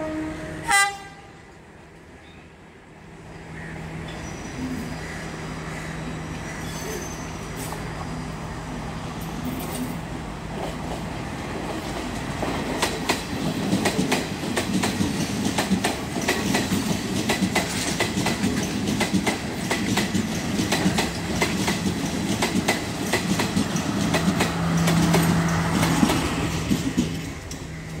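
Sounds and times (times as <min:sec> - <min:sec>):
train wheels clicking over rail joints: 0:09.2 - 0:28.0.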